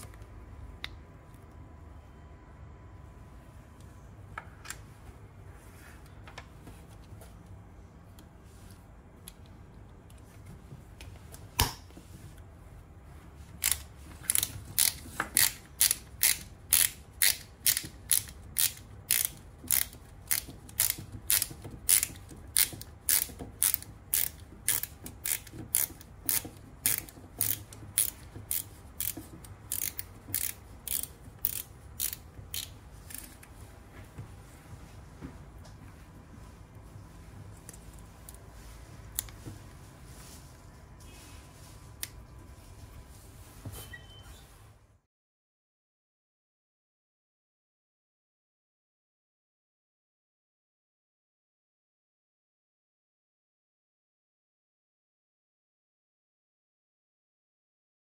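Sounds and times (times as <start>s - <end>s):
ratcheting dial clicking: 13.6s - 33.3s.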